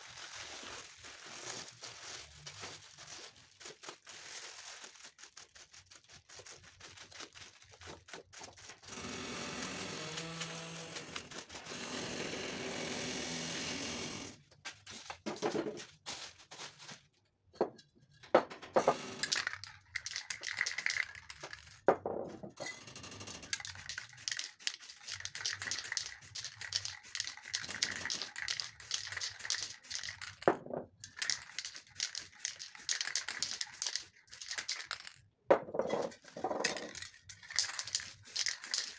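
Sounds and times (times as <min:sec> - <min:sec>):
plastic bag crinkling: 0:00.0 - 0:08.9, 0:23.6 - 0:35.2, 0:36.6 - 0:38.9
spray can hissing: 0:23.6 - 0:30.4, 0:31.1 - 0:34.9, 0:37.5 - 0:38.9.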